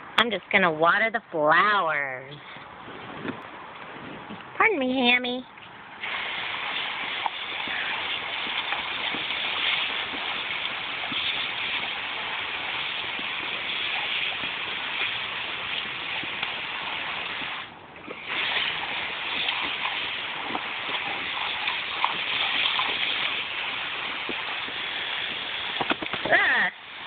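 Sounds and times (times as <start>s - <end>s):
hose spray hissing: 6.0s - 27.0s
water splashing on dog's muzzle: 6.0s - 27.0s.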